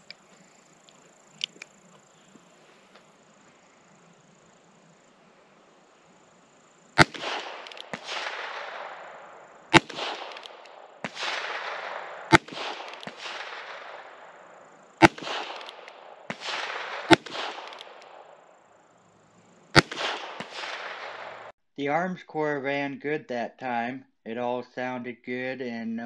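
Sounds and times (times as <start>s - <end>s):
revolver shots with long echo: 7.0s - 18.7s, 19.7s - 21.5s.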